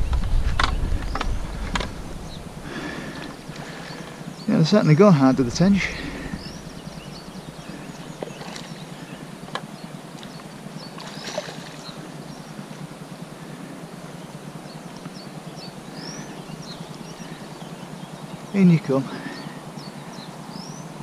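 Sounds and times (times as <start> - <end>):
outdoor background hiss: 0.0 - 21.0.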